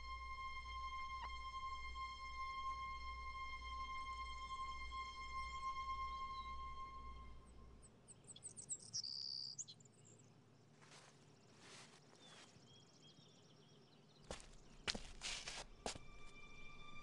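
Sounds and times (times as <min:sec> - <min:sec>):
birds chirping: 0:08.2 - 0:15.5.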